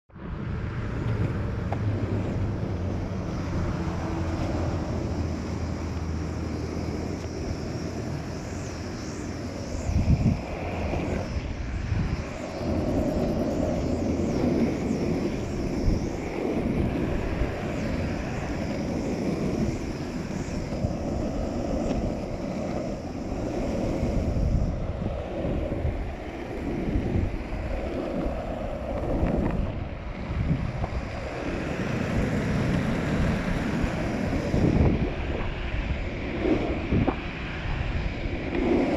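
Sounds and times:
longboard wheels rolling on asphalt: 0.1 - 38.9
wind buffeting microphone: 0.2 - 38.9.

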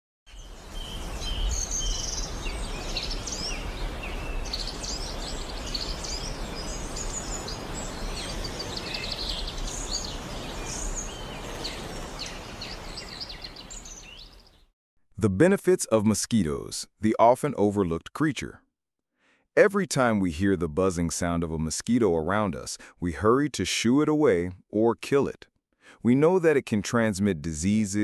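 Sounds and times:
birds chirping and singing: 0.3 - 14.6.

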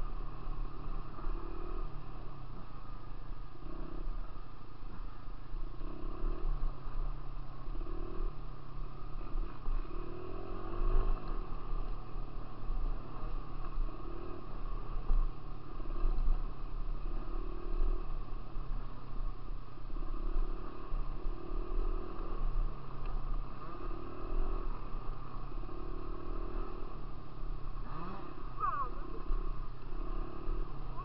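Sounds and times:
dirt bike engine revving: 0.0 - 2.0, 7.7 - 8.4, 9.2 - 16.2, 19.9 - 27.1, 27.8 - 31.0
steady low rumble: 0.0 - 31.0.

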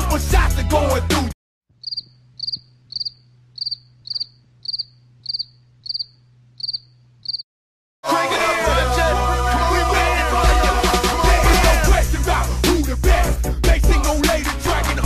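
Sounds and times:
hip-hop music: 0.0 - 1.3, 8.1 - 15.0
crickets chirping: 1.8 - 7.4.

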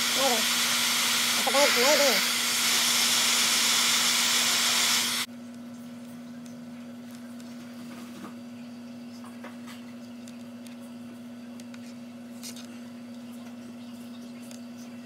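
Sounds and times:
bilge pump motor whirring: 0.0 - 5.3
faint room hum: 5.2 - 15.0.

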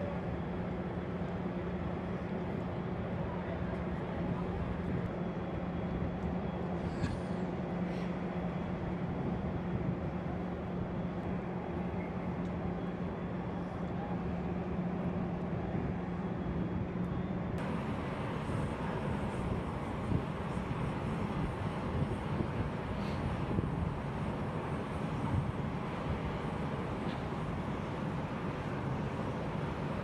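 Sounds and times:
ship machinery drone: 0.0 - 30.0
hiss: 22.9 - 23.4.

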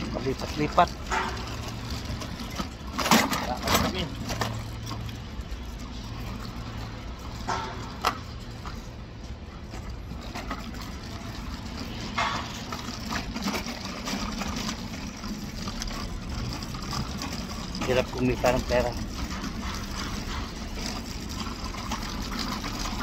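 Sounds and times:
city street traffic hum: 0.0 - 23.0
short knocks and clatters: 0.0 - 23.0.

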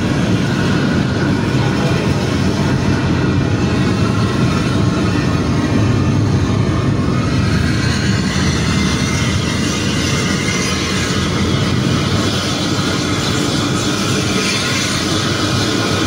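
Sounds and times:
bus diesel engine drone: 0.0 - 16.0
car road noise: 0.0 - 16.0.

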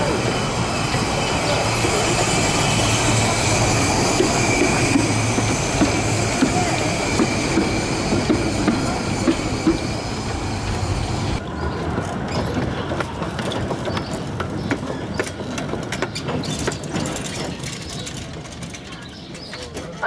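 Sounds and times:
steam locomotive hissing: 0.0 - 11.4
train wheels clacking on rails: 0.0 - 20.0.

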